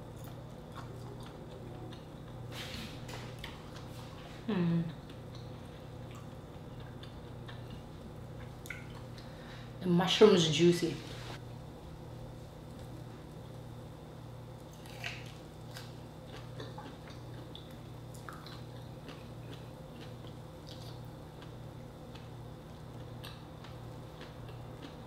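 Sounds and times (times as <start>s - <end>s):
low steady hum: 0.0s - 25.0s
person chewing with mouth clicks: 0.1s - 2.4s, 4.7s - 9.3s, 14.7s - 22.3s, 22.9s - 25.0s.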